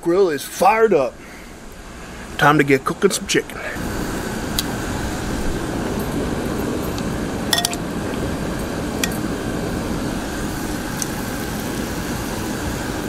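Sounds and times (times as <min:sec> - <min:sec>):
metal tongs clinking on glass bowl: 0:07.5 - 0:07.9, 0:09.0 - 0:09.3
chicken sizzling on a griddle: 0:10.0 - 0:13.0.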